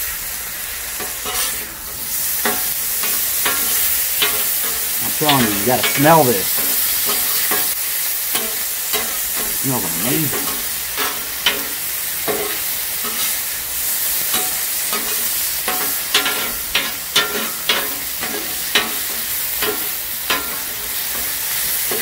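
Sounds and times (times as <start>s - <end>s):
vegetables sizzling on a griddle: 0.0s - 22.0s
metal spatulas scraping steel: 1.0s - 7.7s.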